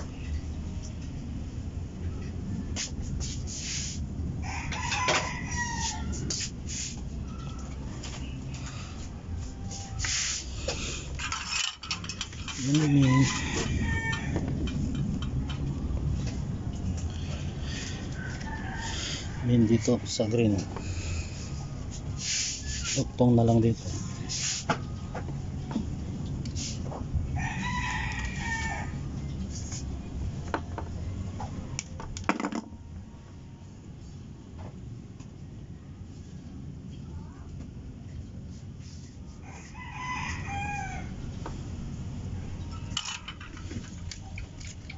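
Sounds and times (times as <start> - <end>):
rooster crowing: 4.4 - 6.4, 12.6 - 14.8, 17.6 - 21.2, 27.4 - 29.1, 39.4 - 41.3
low rumble: 12.0 - 19.4.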